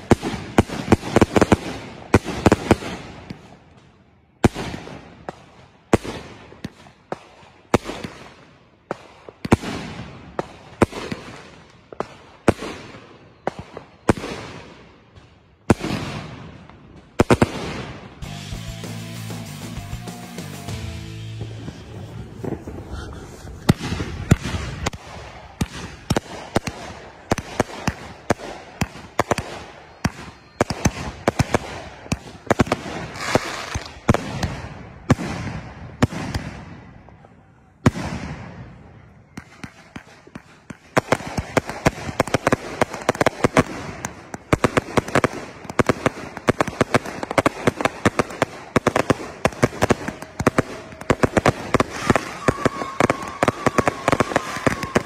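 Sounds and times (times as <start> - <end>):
fireworks bangs with echo: 0.0 - 55.0.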